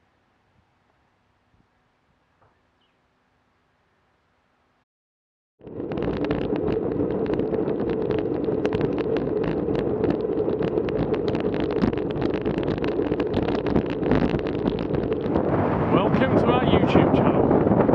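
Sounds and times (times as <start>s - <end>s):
tyre noise on wet road: 5.6s - 17.9s
wind rushing over microphone: 5.6s - 17.9s
bicycle knocks and rattles: 6.1s - 15.6s.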